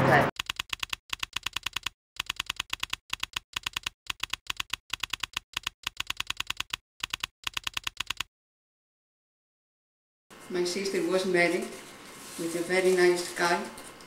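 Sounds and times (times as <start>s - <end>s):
rapid keyboard typing clicks: 0.4s - 8.3s.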